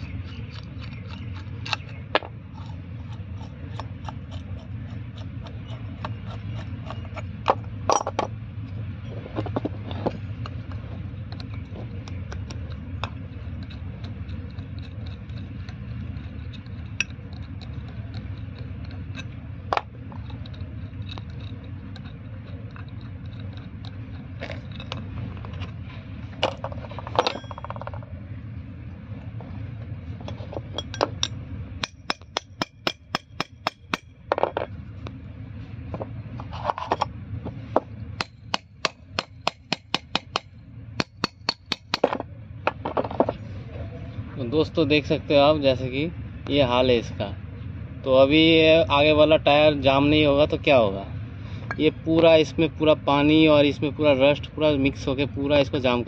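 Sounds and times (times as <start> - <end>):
steady low hum: 0.0 - 56.0
spanners clinking on metal: 27.0 - 28.0.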